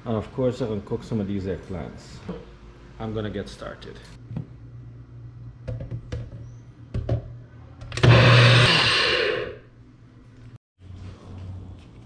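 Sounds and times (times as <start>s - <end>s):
plastic cup knocking and clicking: 5.6s - 6.4s
blender whirring: 7.9s - 9.7s.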